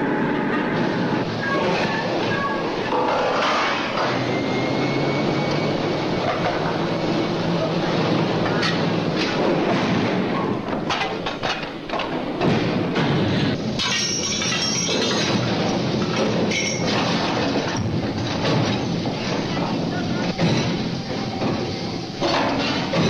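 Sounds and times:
drilling rig machinery running: 0:00.0 - 0:10.3
chain and steel pipe clanking: 0:13.8 - 0:15.4, 0:16.4 - 0:17.0.

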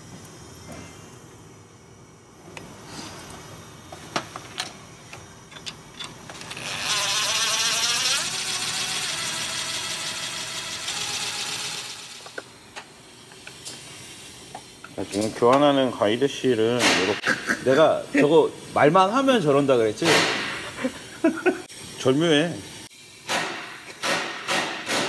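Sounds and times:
air tool whining and hissing: 0:02.4 - 0:25.0.

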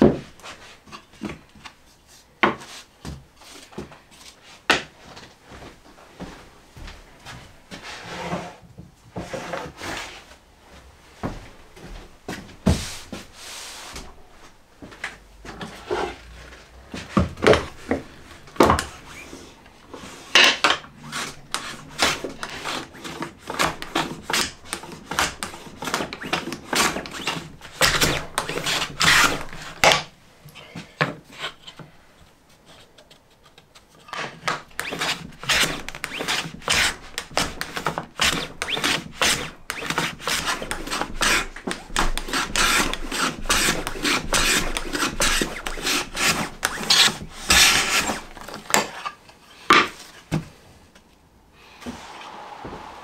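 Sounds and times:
hand plane rasping on wood: 0:21.0 - 0:29.8, 0:34.7 - 0:48.5.

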